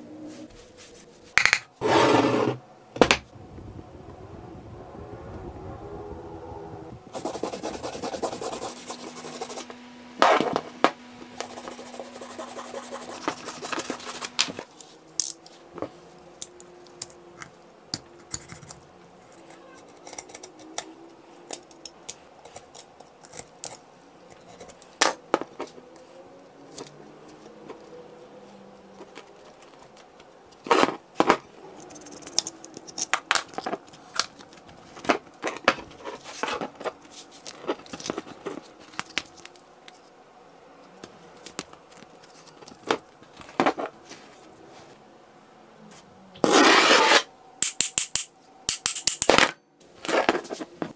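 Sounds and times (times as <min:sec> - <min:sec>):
wire brush scrubbing metal: 0:11.4 - 0:14.4.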